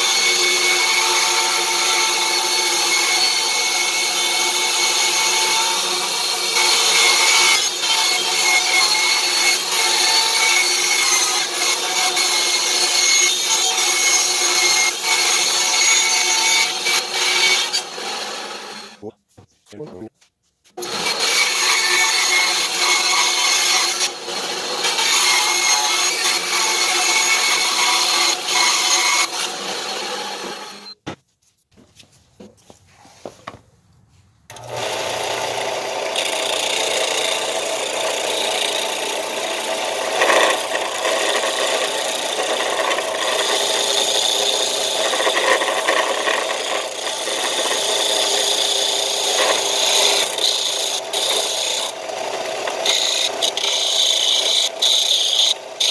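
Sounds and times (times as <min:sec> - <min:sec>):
band saw cutting wood: 0:00.0 - 0:19.0, 0:20.8 - 0:31.0, 0:34.5 - 0:55.9
belt sander running: 0:34.5 - 0:55.9.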